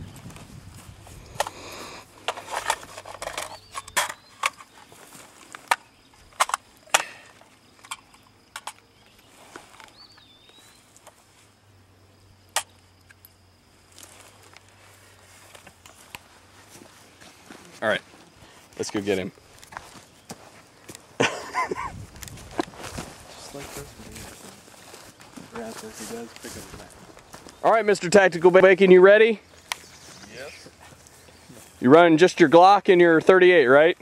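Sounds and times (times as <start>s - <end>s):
rifle parts clicking on wood: 2.2s - 4.8s, 5.5s - 10.3s.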